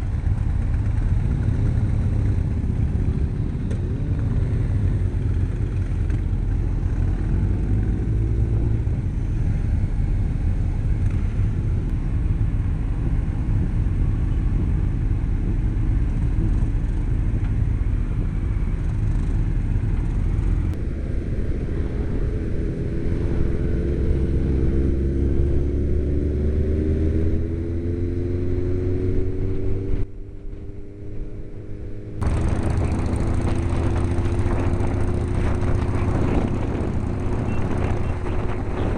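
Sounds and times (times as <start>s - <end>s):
motorcycle engines: 0.0s - 38.9s
wind rumble on microphone: 0.0s - 38.9s.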